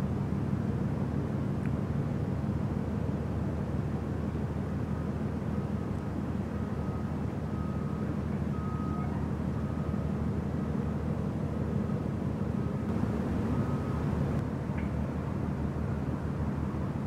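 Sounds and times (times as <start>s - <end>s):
low engine rumble: 0.0s - 17.0s
reversing alarm beeping: 6.6s - 10.1s, 12.6s - 14.2s.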